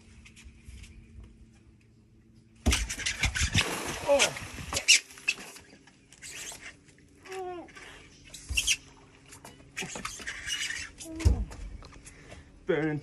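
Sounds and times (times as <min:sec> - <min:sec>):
fishing line squeaking: 0:02.7 - 0:11.4.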